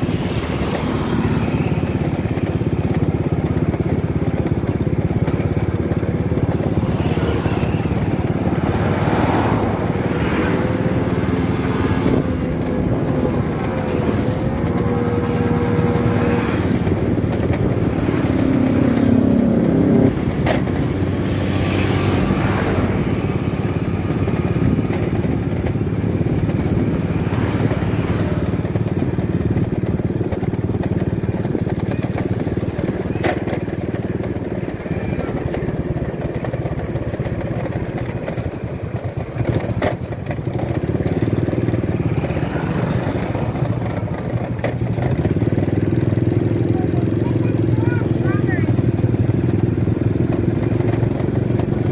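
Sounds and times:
wind rushing over microphone: 0:00.0 - 0:31.8
motorcycle engine running: 0:00.0 - 0:51.9.

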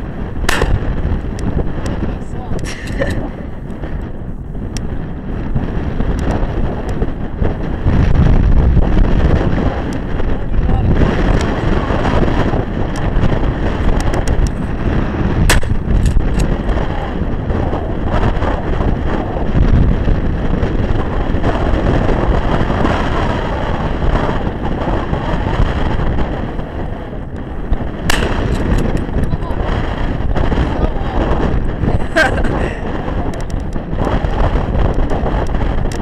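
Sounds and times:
wind buffeting microphone: 0:00.0 - 0:36.0
shotgun blasts: 0:00.5 - 0:01.0, 0:15.5 - 0:16.4, 0:28.1 - 0:29.0.

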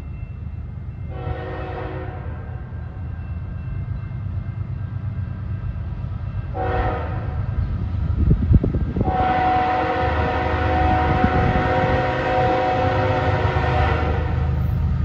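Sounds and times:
train air horn blasts: 0:01.1 - 0:02.6, 0:06.5 - 0:07.4, 0:09.0 - 0:14.5.

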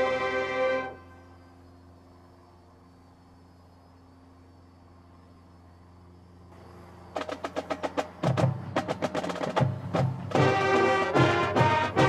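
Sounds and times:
marching band with brass: 0:00.0 - 0:01.2, 0:07.2 - 0:12.0
snare and bass drums: 0:07.2 - 0:12.0.

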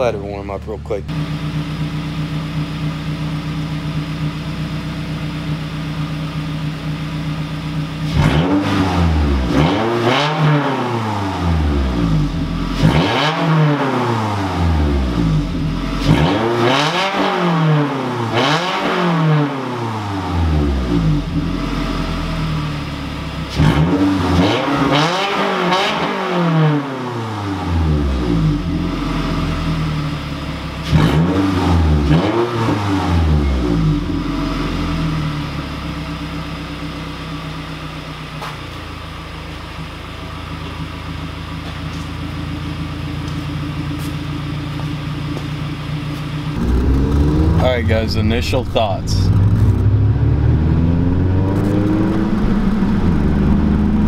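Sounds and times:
car engine idling: 0:00.0 - 0:08.2, 0:11.1 - 0:12.8, 0:14.3 - 0:16.1, 0:19.9 - 0:23.6, 0:28.6 - 0:30.9, 0:33.4 - 0:54.0
car engine revving: 0:00.0 - 0:38.2, 0:39.8 - 0:54.0.

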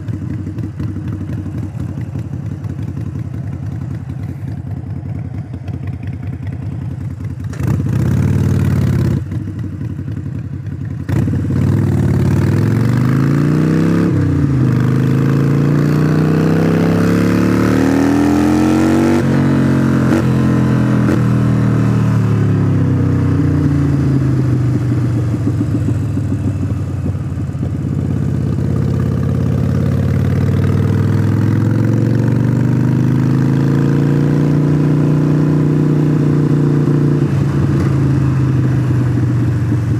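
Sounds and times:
motorcycle engine revving: 0:00.0 - 0:39.9.

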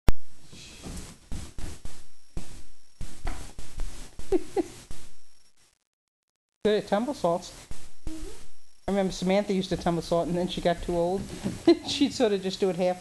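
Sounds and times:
kitten voice sounds: 0:08.0 - 0:08.5
kitten thumping and scuffling on floor: 0:10.8 - 0:12.1.

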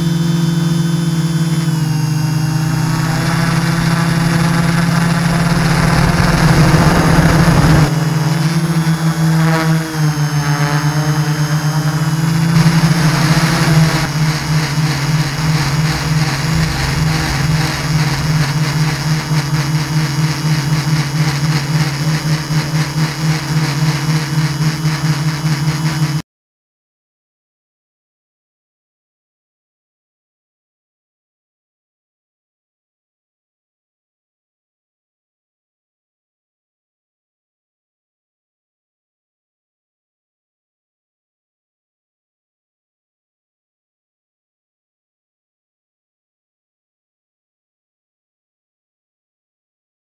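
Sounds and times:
drone motors and propellers droning: 0:00.0 - 0:26.2
noisy rush: 0:02.5 - 0:09.3, 0:11.6 - 0:26.0.

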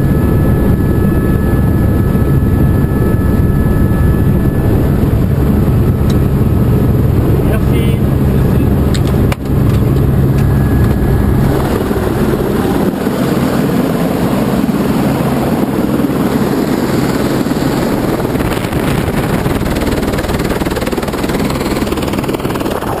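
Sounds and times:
low cabin hum: 0:00.0 - 0:14.9
helicopter engine and rotor: 0:00.0 - 0:23.0.

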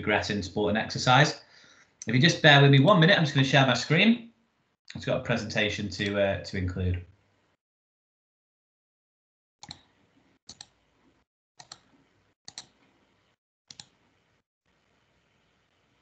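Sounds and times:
computer mouse clicks: 0:09.6 - 0:09.9, 0:10.5 - 0:10.8, 0:11.6 - 0:11.9, 0:12.5 - 0:12.8, 0:13.7 - 0:14.0
faint room noise: 0:11.8 - 0:16.0.

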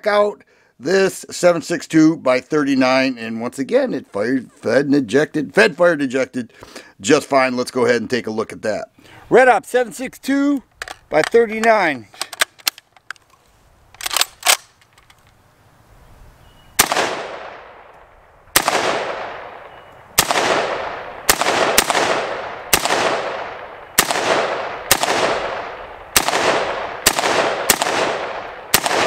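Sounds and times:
rifle handling clicks: 0:10.6 - 0:15.4
rifle shots echoing: 0:16.8 - 0:29.0.

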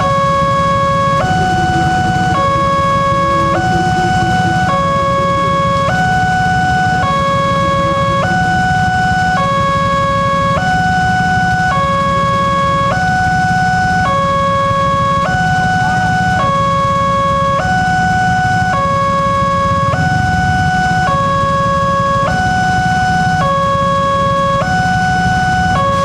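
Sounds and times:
motorbike engines idling: 0:00.0 - 0:10.6
two-tone crossing alarm: 0:00.0 - 0:26.0.

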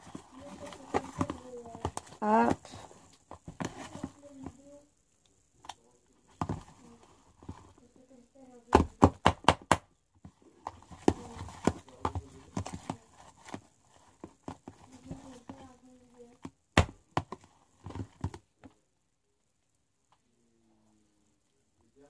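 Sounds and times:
spoon stirring slime in tub: 0:00.0 - 0:04.6, 0:10.3 - 0:18.3.

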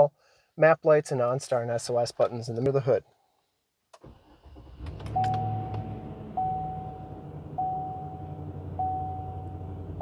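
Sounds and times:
truck engine starting and idling: 0:04.0 - 0:10.0
dashboard warning chime: 0:05.1 - 0:09.8.

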